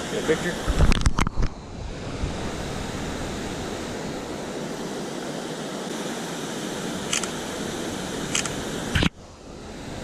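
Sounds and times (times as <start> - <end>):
river water tumbling over weir: 0.0 - 10.0.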